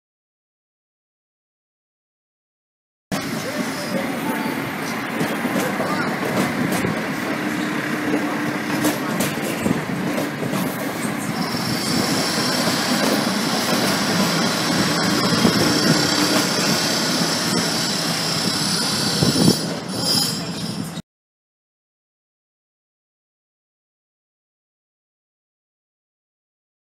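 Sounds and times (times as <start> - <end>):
diesel railcar engine: 3.1 - 21.0
wheels on rails: 3.2 - 21.0
high-pitched wheel squeal: 14.4 - 21.0.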